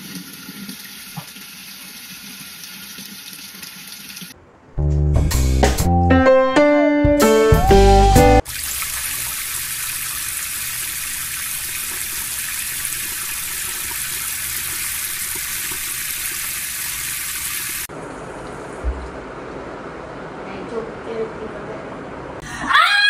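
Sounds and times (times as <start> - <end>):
tap water splashing into basin: 0.6 - 2.5.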